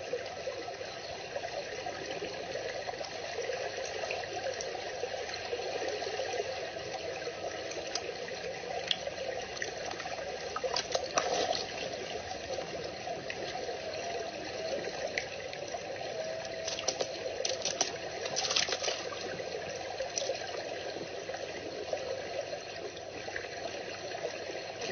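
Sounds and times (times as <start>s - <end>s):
water trickling: 0.0s - 24.9s
faint clicks: 16.4s - 19.1s.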